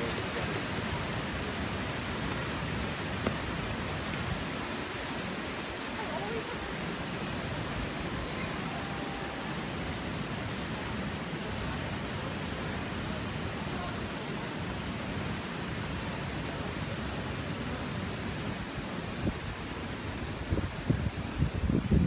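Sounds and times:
river rushing over rocks: 0.0 - 22.0.

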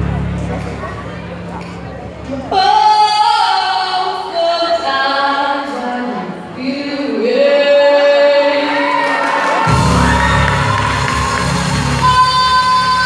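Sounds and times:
woman singing unaccompanied: 2.5 - 9.0.

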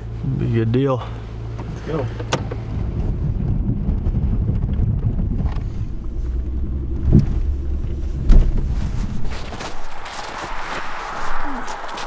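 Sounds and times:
engine and road rumble: 0.0 - 12.0
thump: 8.2 - 8.7.

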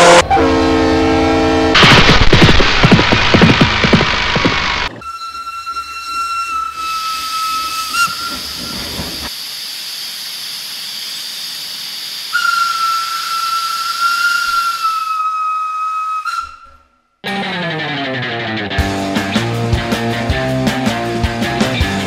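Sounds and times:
steam whistle: 0.0 - 1.8, 5.0 - 9.3, 12.2 - 17.0
steam hissing: 6.8 - 15.1.

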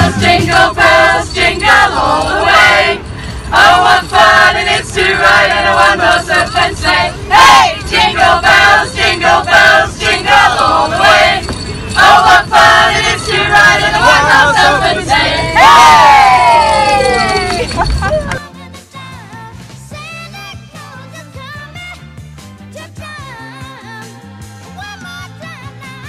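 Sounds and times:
group singing in chorus: 0.0 - 15.8.

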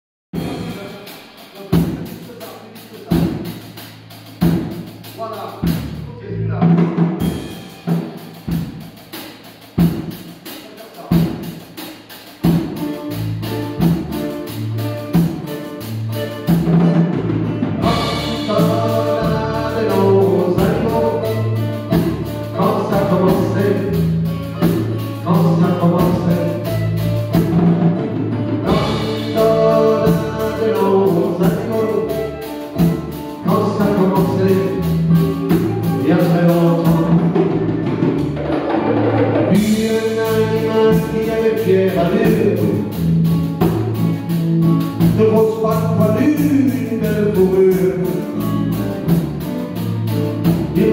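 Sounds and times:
upright bass: 0.4 - 9.1, 9.8 - 50.9
acoustic guitars strummed: 12.3 - 50.9.

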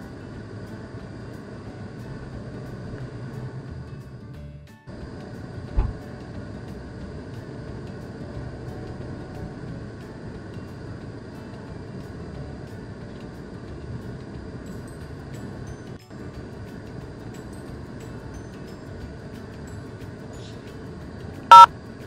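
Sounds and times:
car engine and road rumble: 5.6 - 6.0
low thump: 5.8 - 6.0.

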